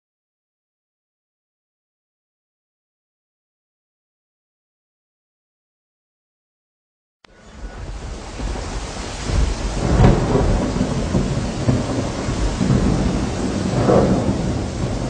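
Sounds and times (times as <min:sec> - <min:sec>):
steady rain: 0:07.3 - 0:15.0
rumbling thunder: 0:07.4 - 0:15.0.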